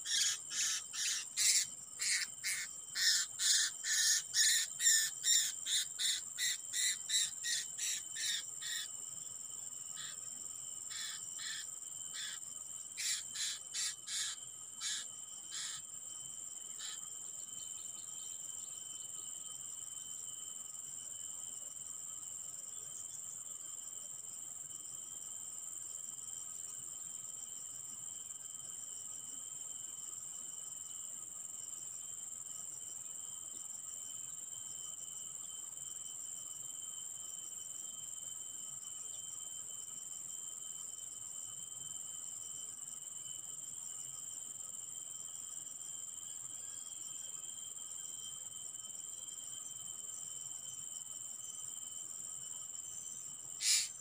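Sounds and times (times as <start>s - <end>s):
crickets chirping: 0.0s - 54.0s
short sharp chirps: 53.6s - 53.9s.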